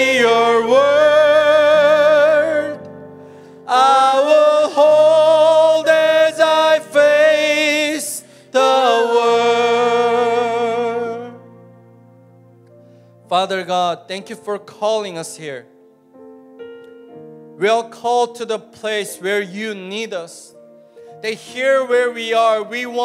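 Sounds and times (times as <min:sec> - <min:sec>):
man singing into a microphone: 0:00.0 - 0:02.9, 0:03.6 - 0:11.4, 0:21.2 - 0:23.0
soft instrumental backing: 0:00.0 - 0:23.0.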